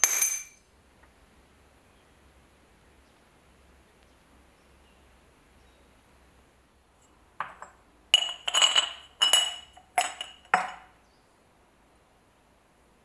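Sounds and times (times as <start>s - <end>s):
glass jar clinking: 0.0s - 0.6s, 7.4s - 10.9s.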